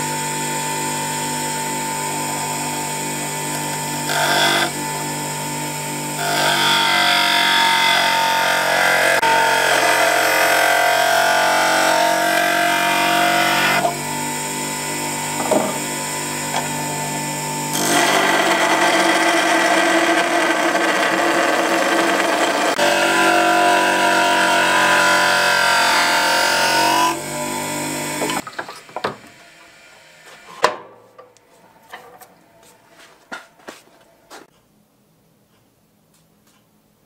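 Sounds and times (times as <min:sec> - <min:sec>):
bench grinder motor running: 0:00.0 - 0:28.4
tool grinding on grinder wheel: 0:00.3 - 0:30.5
tool knocking: 0:15.4 - 0:15.9.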